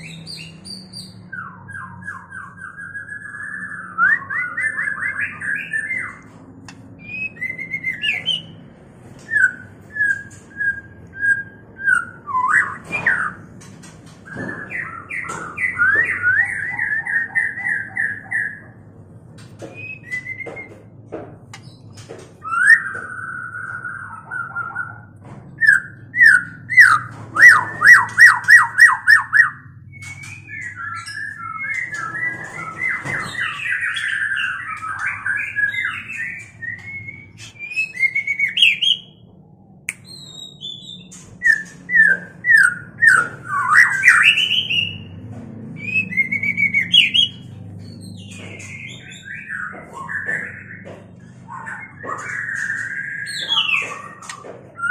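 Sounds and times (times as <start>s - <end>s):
birds whistling calls: 0.0s - 18.9s, 19.6s - 45.2s, 45.8s - 54.9s
chattering whistles: 25.6s - 39.2s.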